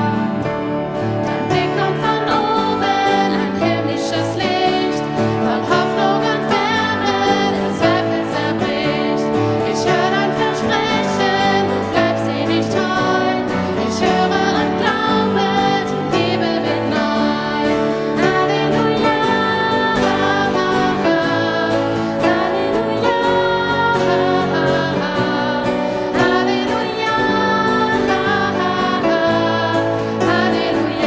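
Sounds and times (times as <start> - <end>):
acoustic guitar: 0.0 - 31.0
grand piano: 0.0 - 31.0
women singing worship song: 0.0 - 31.0.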